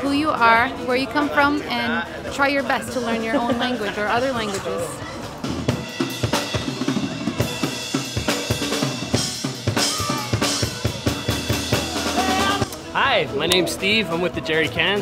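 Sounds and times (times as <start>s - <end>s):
band playing: 1.8s - 14.4s
drum kit beat: 5.2s - 13.0s
held instrument notes: 8.8s - 13.4s.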